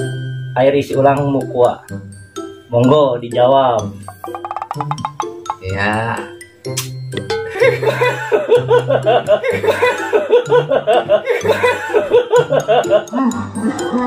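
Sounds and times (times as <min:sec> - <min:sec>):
background music with bass line: 0:03.8 - 0:14.0
hearty human laughter: 0:07.5 - 0:14.0.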